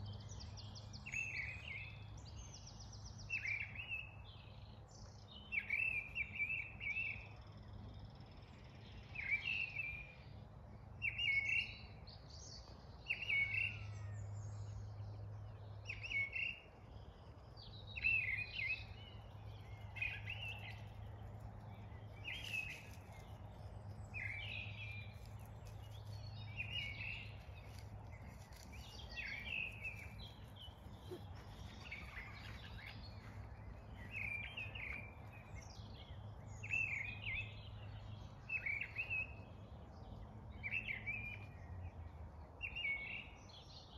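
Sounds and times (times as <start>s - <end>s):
songbirds singing: 0.0s - 43.9s.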